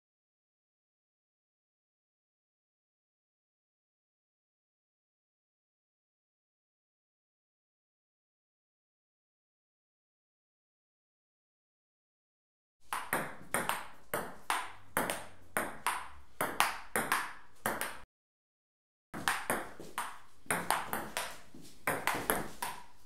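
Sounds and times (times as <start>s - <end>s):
ping-pong ball clicking: 12.9s - 18.0s, 19.2s - 23.0s.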